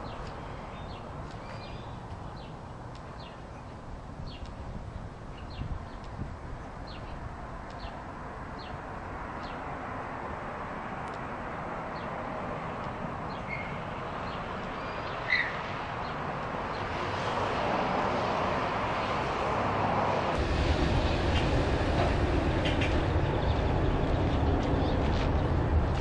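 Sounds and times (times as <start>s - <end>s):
bird chirps: 0.0s - 4.6s, 13.3s - 15.7s
train rumbling on bridge: 18.8s - 26.0s.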